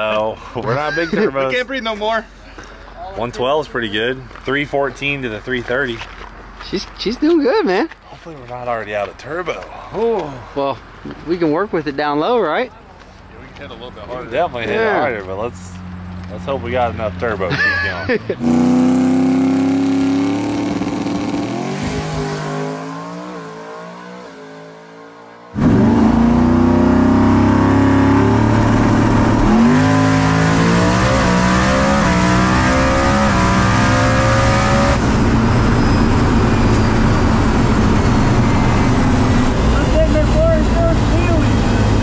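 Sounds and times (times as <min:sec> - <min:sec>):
drag car engine revving: 0:18.4 - 0:42.0.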